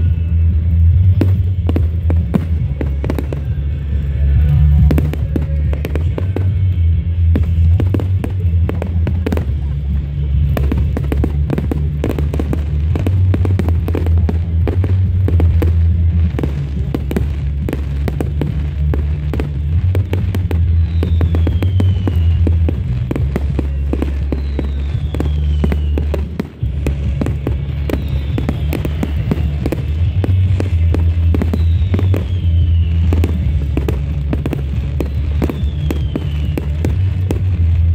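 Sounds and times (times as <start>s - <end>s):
firework bangs and crackling: 0.0s - 37.9s
falling firework whistles: 19.3s - 37.5s.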